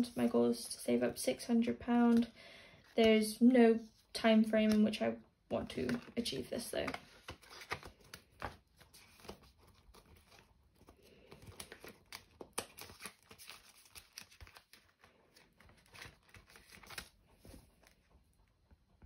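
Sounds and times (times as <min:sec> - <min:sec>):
plastic envelopes crinkling: 0:05.7 - 0:18.2.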